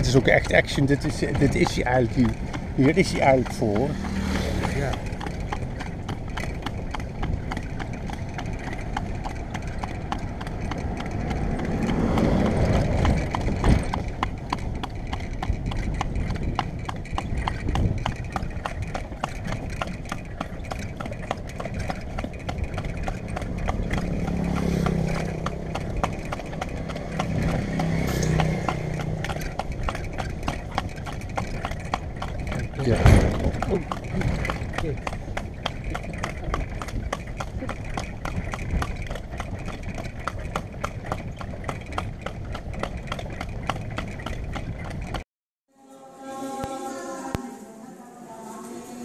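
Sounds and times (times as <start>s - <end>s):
cart rattling: 0.0s - 45.2s
horse hooves on paved road: 0.0s - 45.2s
low hum: 45.7s - 49.0s.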